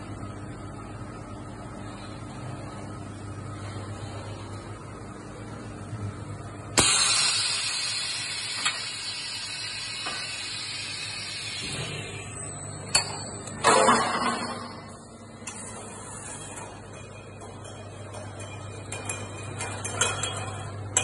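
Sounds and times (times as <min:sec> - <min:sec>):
bottle-filling machine humming: 0:06.8 - 0:15.9.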